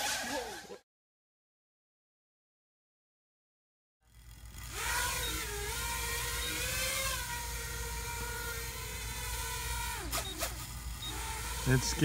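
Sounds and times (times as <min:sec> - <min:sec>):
toy drone propellers whining: 0:00.0 - 0:00.8, 0:04.1 - 0:12.0.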